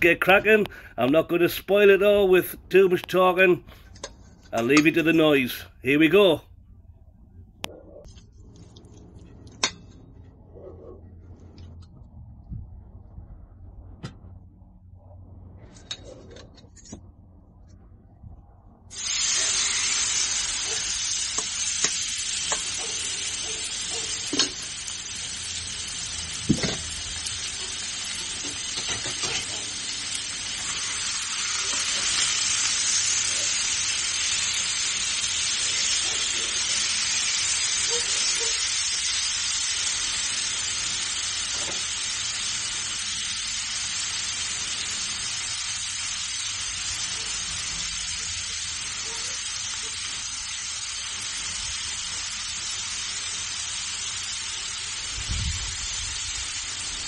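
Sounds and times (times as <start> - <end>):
chicken sizzling on a griddle: 18.9 - 57.0.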